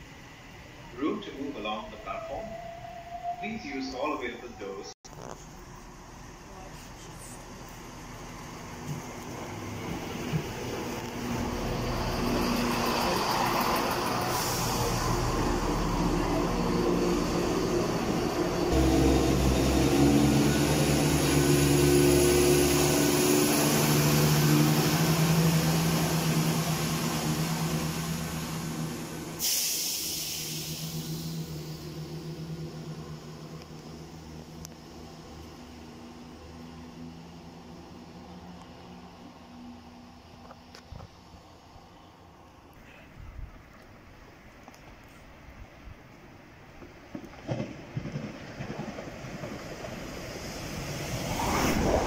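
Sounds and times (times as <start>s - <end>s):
train rumbling: 0.0s - 41.8s, 46.5s - 52.0s
air release hiss: 14.3s - 15.3s, 29.4s - 31.6s
high whine: 51.0s - 52.0s.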